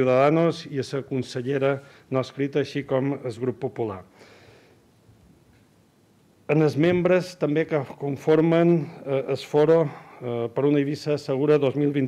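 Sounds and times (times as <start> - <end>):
man breathing in: 4.1 - 4.9.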